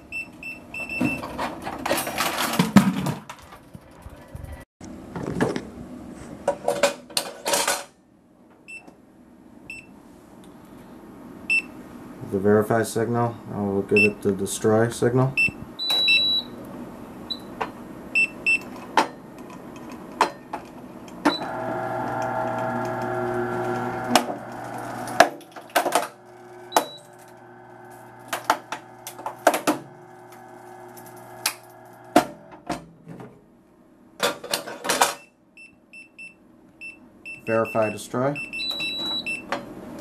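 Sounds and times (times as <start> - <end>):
motor hum: 21.0 - 32.7.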